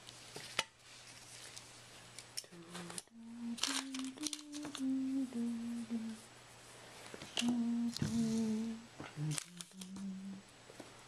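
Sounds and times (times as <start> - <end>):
person humming a tune: 2.4 - 6.3, 7.3 - 10.5.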